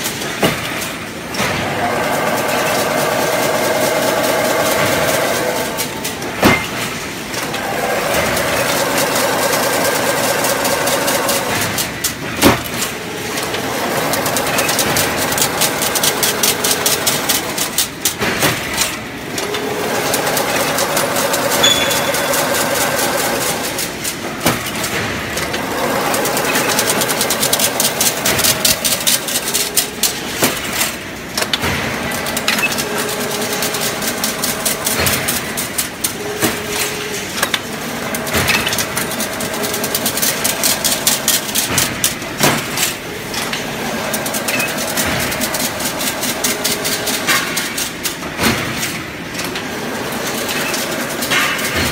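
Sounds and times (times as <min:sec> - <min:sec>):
weaving machine metallic clatter: 0:00.0 - 0:51.9.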